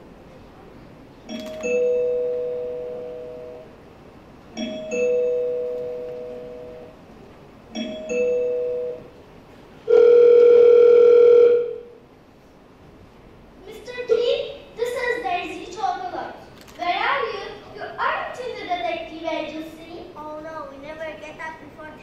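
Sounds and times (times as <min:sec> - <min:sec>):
two-tone doorbell chime: 0:01.3 - 0:03.7, 0:04.6 - 0:07.0, 0:07.8 - 0:09.1
loud buzzing ring: 0:01.3 - 0:03.8, 0:04.6 - 0:07.0, 0:07.8 - 0:09.2, 0:09.9 - 0:12.0.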